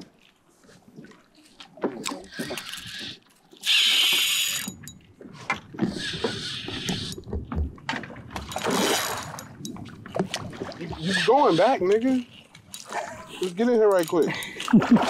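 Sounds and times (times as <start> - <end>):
fishing reel buzzing and clicking: 2.0 - 5.0, 5.8 - 7.2, 11.0 - 14.8.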